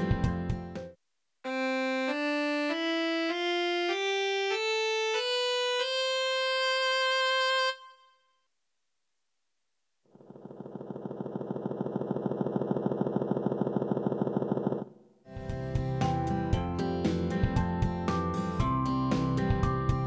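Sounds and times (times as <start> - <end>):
keyboard cello tone scale: 1.5 - 8.3
keyboard music: 1.5 - 8.3.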